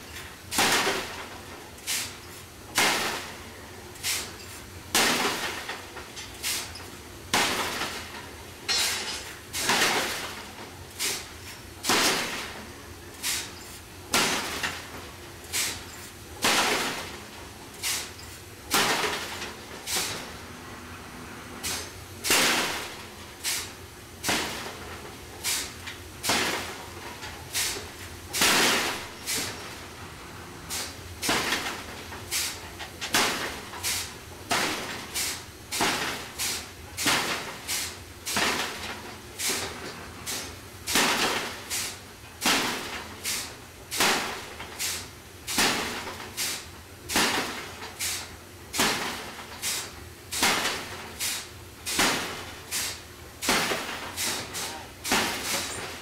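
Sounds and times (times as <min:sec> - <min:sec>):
power hammer striking hot metal: 0:08.7 - 0:10.2, 0:28.4 - 0:29.8.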